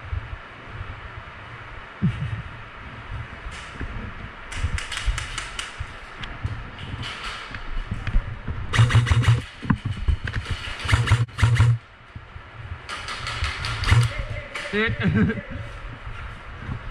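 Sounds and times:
airsoft guns firing bursts: 8.8s - 9.5s, 10.8s - 11.8s, 13.0s - 14.2s.

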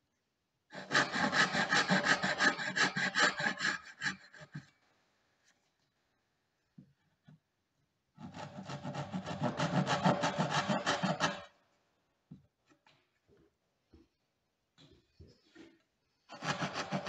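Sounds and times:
backsaw rasping through wood: 0.7s - 4.7s, 8.2s - 11.5s, 16.3s - 17.0s.

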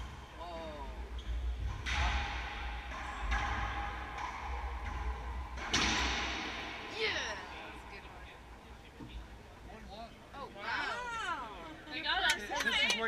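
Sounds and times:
racquets striking ball: 1.6s - 6.9s
ball hitting walls: 1.6s - 7.0s.

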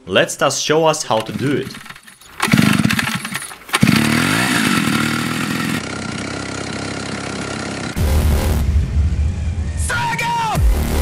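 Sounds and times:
two-stroke engine revving: 1.1s - 8.6s.

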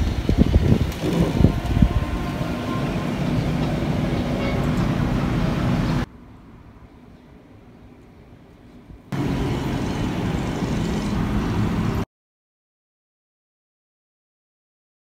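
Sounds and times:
wind buffeting microphone: 0.0s - 6.1s
city hum: 0.0s - 12.1s.

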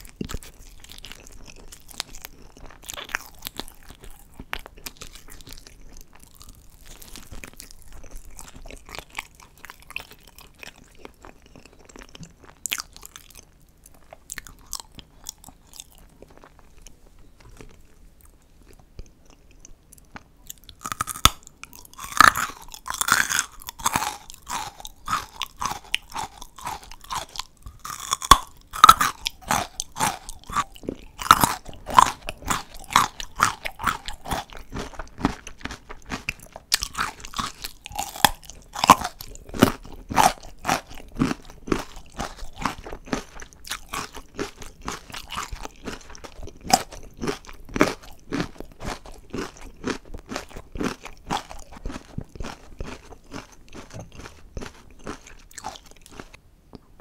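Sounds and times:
crunchy chewing: 0.0s - 56.4s
carrot crunching bites: 20.5s - 56.4s.

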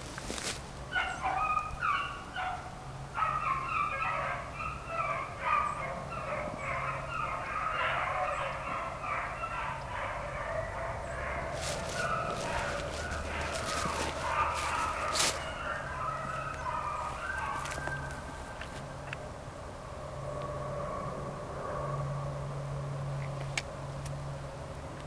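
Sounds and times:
pack of dogs baying: 0.9s - 19.1s.

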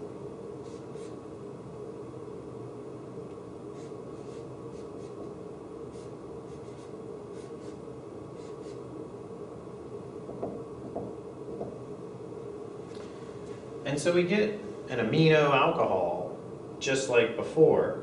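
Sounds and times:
steady room hum: 0.0s - 18.0s
marker squeaking on whiteboard: 3.7s - 5.3s, 5.9s - 7.8s, 8.4s - 8.8s.

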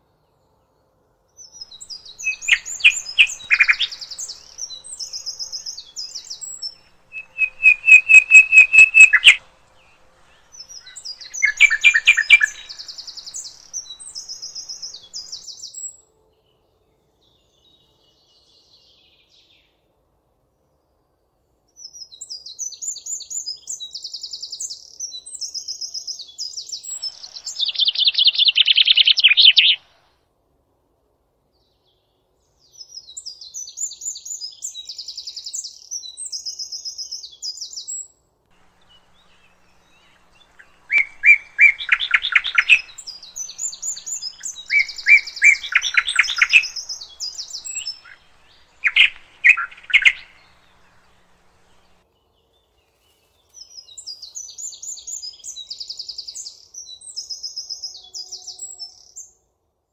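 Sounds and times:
songbird trilling: 1.7s - 15.5s, 27.0s - 29.8s, 38.7s - 52.0s.

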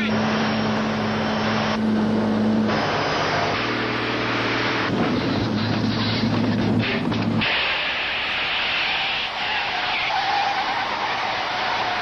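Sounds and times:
road noise: 0.0s - 12.0s
truck engine droning: 0.0s - 12.0s.

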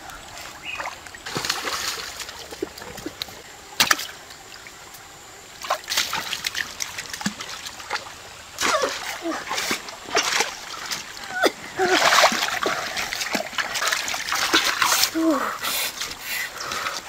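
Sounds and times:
stream water trickling: 0.0s - 17.0s
sharp water splashes: 0.6s - 3.1s, 3.8s - 4.2s, 5.6s - 15.4s.

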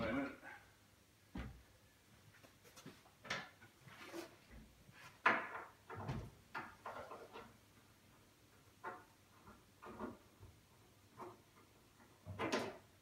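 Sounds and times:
wooden wardrobe knocks and clunks: 1.3s - 1.7s, 5.2s - 7.1s.

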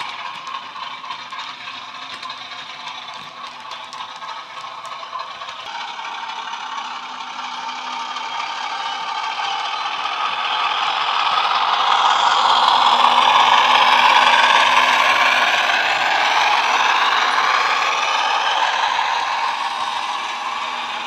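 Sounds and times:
diesel engine sound from small speaker: 0.0s - 21.0s
model wagon wheels rattling on track: 0.0s - 21.0s.

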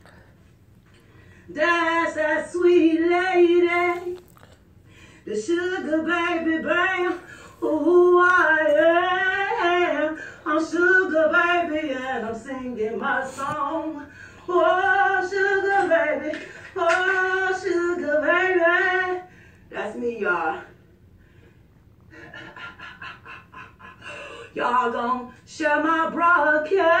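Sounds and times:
woman singing unaccompanied: 1.5s - 4.2s, 5.2s - 20.7s, 24.4s - 27.0s.

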